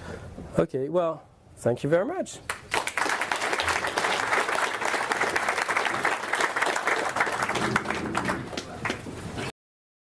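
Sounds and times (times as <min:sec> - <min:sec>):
audience applauding: 0:02.5 - 0:09.1.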